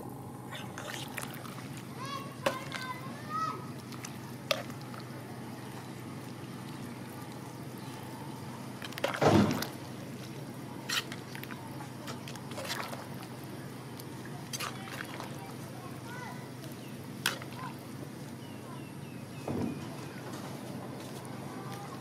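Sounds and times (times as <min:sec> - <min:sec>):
liquid sloshing: 0:00.5 - 0:15.7, 0:16.7 - 0:17.8
ladle stirring soup: 0:00.6 - 0:15.7.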